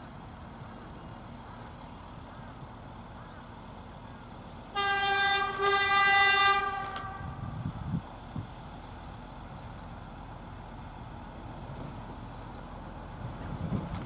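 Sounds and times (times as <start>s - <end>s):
train horn blasts: 4.7s - 7.6s.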